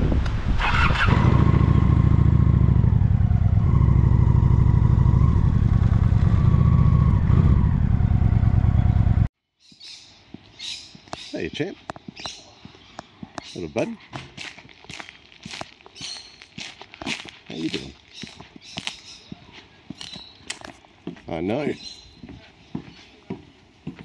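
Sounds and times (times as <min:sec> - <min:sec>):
motorcycle engine running: 0:00.7 - 0:09.3.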